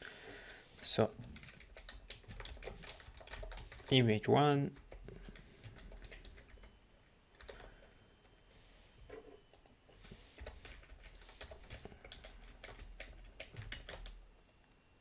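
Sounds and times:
typing on computer keyboard: 0:00.2 - 0:04.0, 0:04.7 - 0:07.9, 0:09.5 - 0:14.2.

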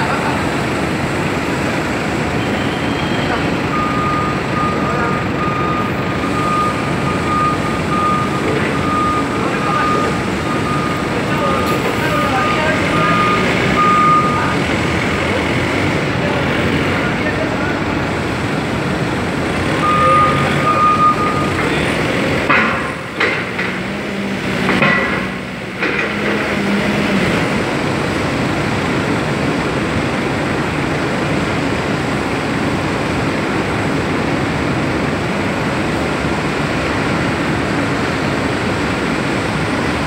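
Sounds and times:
industrial machine noise: 0:00.0 - 0:40.0
short steady tone: 0:02.4 - 0:11.6.

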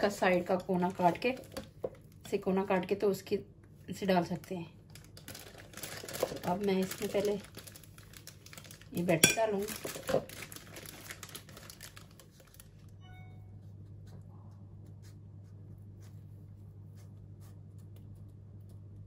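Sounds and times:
steady low hum: 0:10.8 - 0:19.0.

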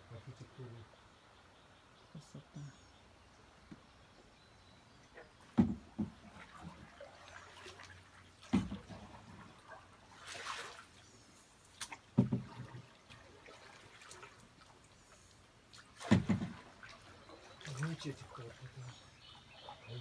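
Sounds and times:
water trickling and dripping: 0:04.9 - 0:20.0
paddle thumping hull: 0:05.4 - 0:06.9, 0:08.4 - 0:09.5, 0:11.8 - 0:12.9, 0:16.0 - 0:17.0
water splash: 0:05.5 - 0:11.0, 0:11.7 - 0:14.8, 0:15.7 - 0:18.7.

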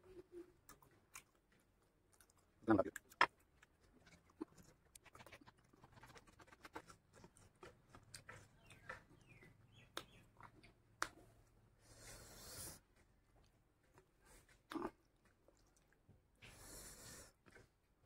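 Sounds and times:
hand mixing rice on a plate: 0:00.4 - 0:11.3.

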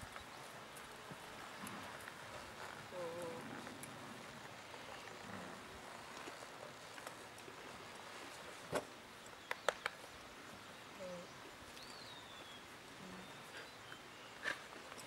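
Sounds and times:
bird chirp: 0:10.7 - 0:15.0.

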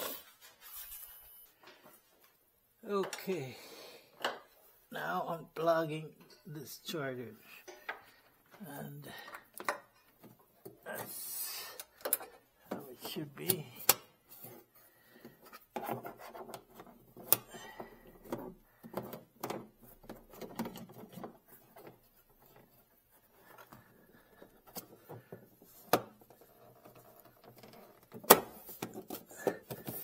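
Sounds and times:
cable scraping plastic: 0:14.4 - 0:17.5, 0:18.2 - 0:30.0.

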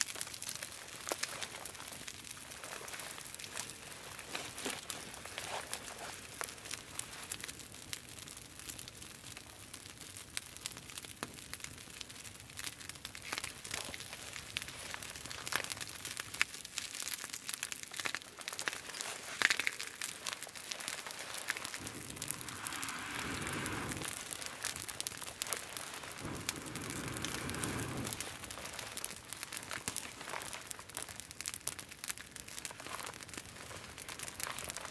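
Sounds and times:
campfire crackling and popping: 0:00.0 - 0:34.9
rushing sound: 0:21.8 - 0:25.0, 0:26.1 - 0:28.5.

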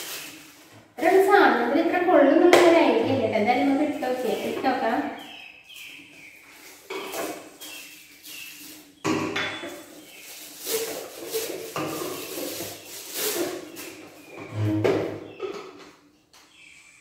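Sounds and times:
plastic packing crinkling: 0:00.0 - 0:01.6, 0:05.7 - 0:14.4.

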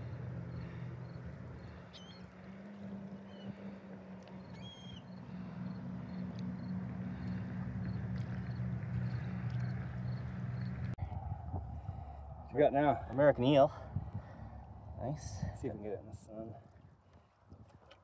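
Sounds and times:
motorboat engine humming: 0:00.0 - 0:12.5
faint bird chirps: 0:01.7 - 0:02.3, 0:04.4 - 0:05.2.

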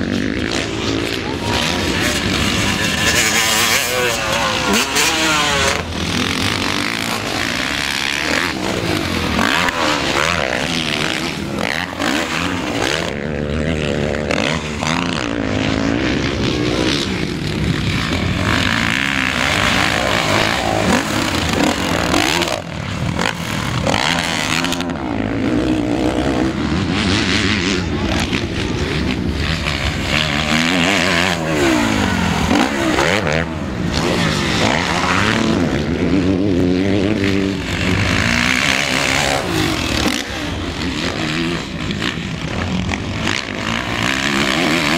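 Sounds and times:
motocross bike engines revving: 0:00.0 - 0:44.9.

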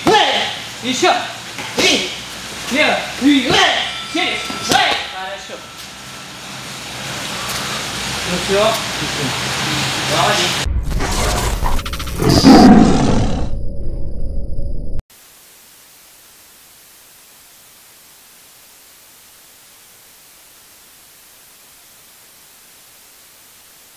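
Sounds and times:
tv static hiss: 0:00.2 - 0:10.6, 0:15.1 - 0:23.9
crackling glitch noise: 0:02.7 - 0:23.9
big cat roar: 0:11.9 - 0:13.5.

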